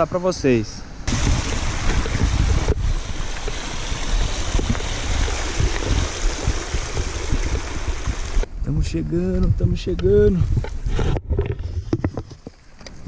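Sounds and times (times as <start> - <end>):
wind buffeting microphone: 1.0 - 12.4
mountain bike riding over rock: 1.1 - 8.5.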